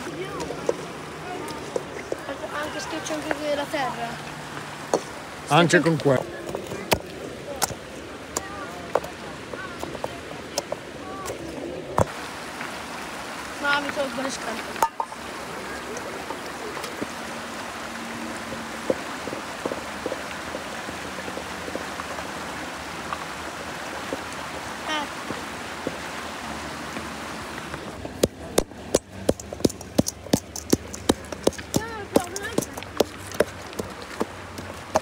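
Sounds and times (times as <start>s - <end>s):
river water flowing over stones: 0.0s - 35.0s
stone pounding in metal bowl: 28.2s - 33.6s.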